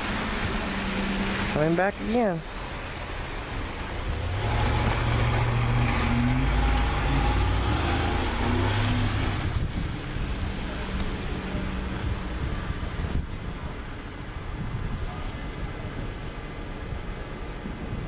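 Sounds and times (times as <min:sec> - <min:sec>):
tyres churning snow: 0:00.0 - 0:18.0
truck engine revving: 0:04.0 - 0:12.2.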